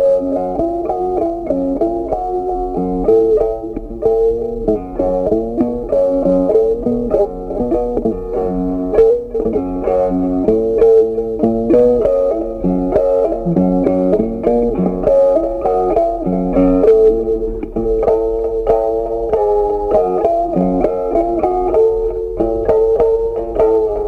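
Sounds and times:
plucked guitar melody: 0.0s - 24.0s
bass line: 9.2s - 15.1s.

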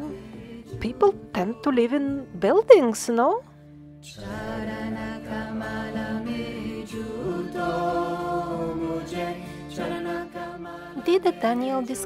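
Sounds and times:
voices chanting long notes: 4.2s - 11.5s.

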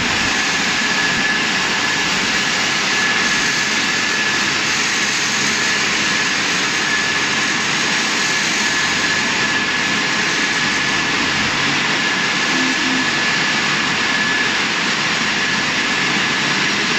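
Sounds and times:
thin high whine: 0.0s - 16.9s
car wash water rushing hiss: 7.5s - 15.2s.

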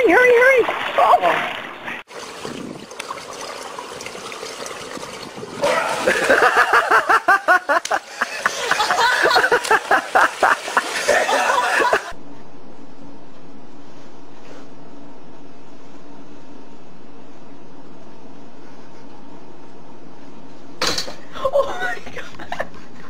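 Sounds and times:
pool water sloshing: 0.0s - 12.2s
people laughing hard: 5.6s - 12.2s
steady low hum: 12.1s - 23.0s.

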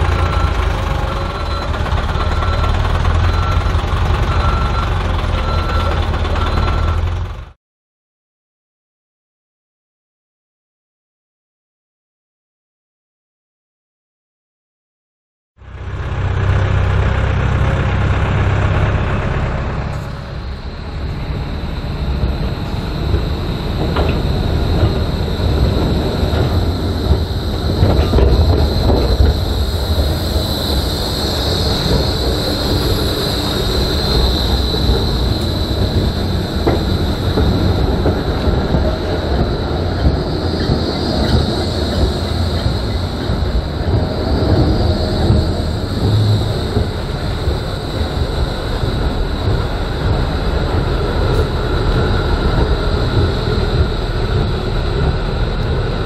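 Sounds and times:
tractor engine humming: 0.0s - 7.6s, 15.6s - 56.0s
tram wheels rumbling over rails: 0.0s - 7.6s, 15.6s - 56.0s
high steady whine: 17.5s - 56.0s.

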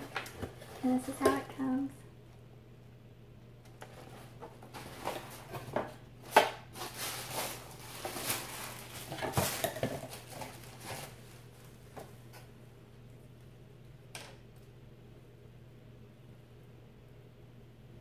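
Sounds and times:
tissue paper rustling: 4.0s - 11.9s.

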